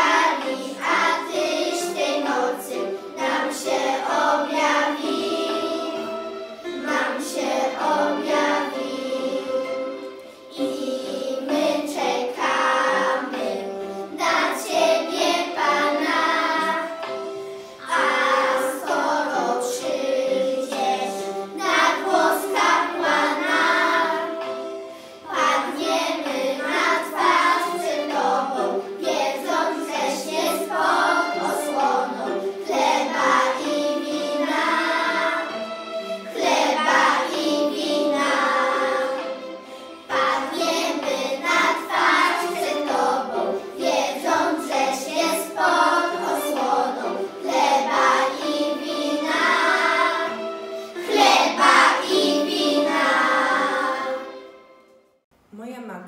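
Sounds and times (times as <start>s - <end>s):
children singing a carol: 0.0s - 54.7s.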